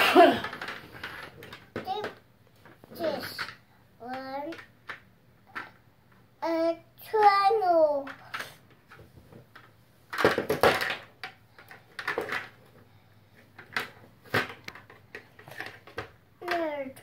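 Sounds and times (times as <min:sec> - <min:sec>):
plastic blocks clattering: 0:00.2 - 0:05.8, 0:09.6 - 0:12.6, 0:13.6 - 0:16.8.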